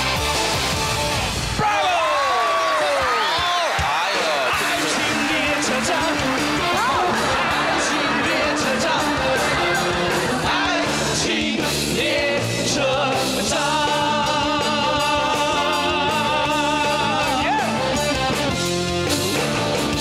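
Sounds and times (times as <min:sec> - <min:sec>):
band accompaniment: 0:03.7 - 0:20.0
man singing pop song: 0:03.9 - 0:18.0.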